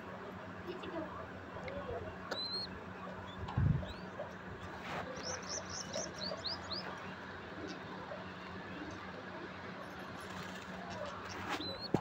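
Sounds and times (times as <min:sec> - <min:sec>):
bird chirping: 0:02.3 - 0:04.3, 0:05.1 - 0:07.8.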